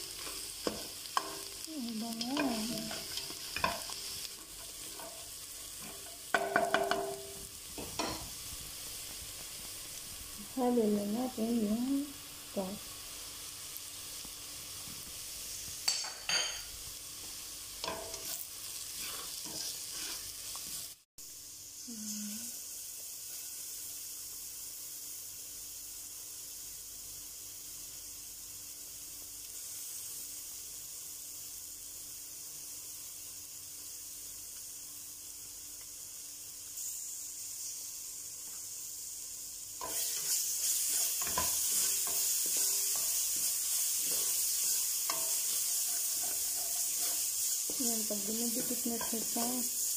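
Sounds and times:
spoon stirring and scraping pot: 0:00.0 - 0:08.4, 0:17.8 - 0:20.9, 0:39.8 - 0:49.9
onions sizzling in oil: 0:00.0 - 0:49.9.

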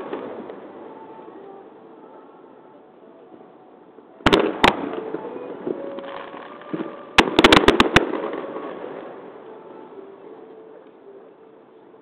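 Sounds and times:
firework shells bursting: 0:04.3 - 0:08.6.

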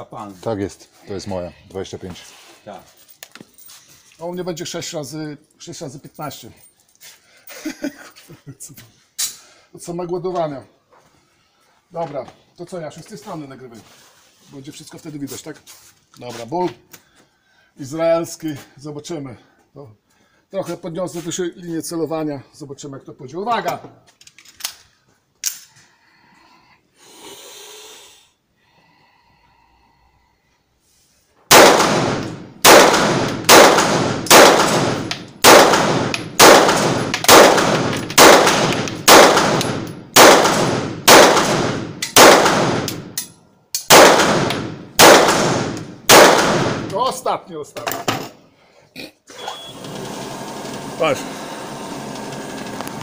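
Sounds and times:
pistol shots echoing indoors: 0:31.5 - 0:43.1, 0:43.9 - 0:46.9.

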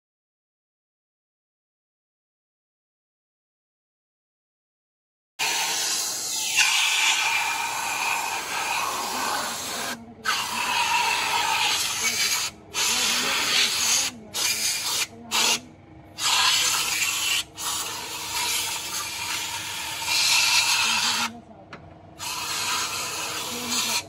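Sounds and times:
air spray gun hissing: 0:05.4 - 0:15.6, 0:22.2 - 0:24.0.

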